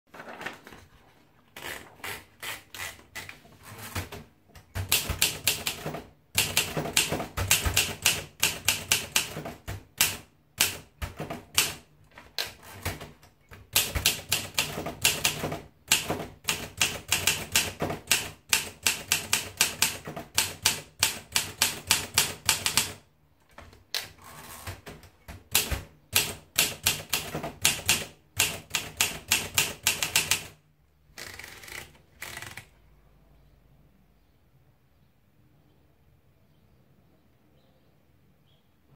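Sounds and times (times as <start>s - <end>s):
typewriter keystrokes: 2.1s - 30.6s.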